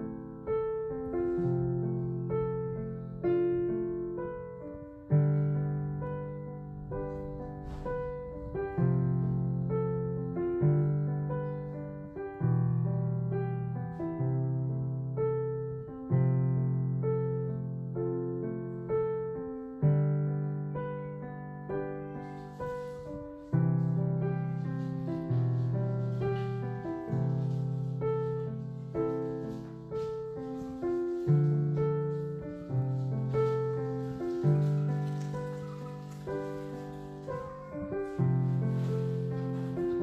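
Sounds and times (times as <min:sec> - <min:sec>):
slow piano chords: 0:00.0 - 0:40.0.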